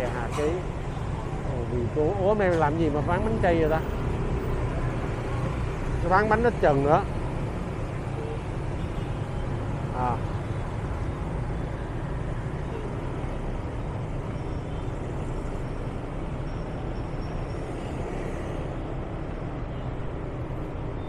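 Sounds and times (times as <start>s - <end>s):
traffic rumble: 0.0s - 21.0s.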